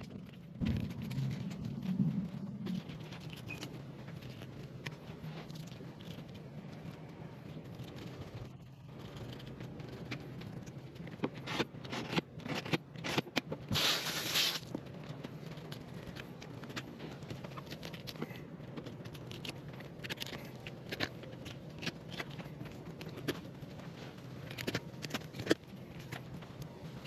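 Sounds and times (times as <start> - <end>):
loud hiss: 13.7 - 14.7.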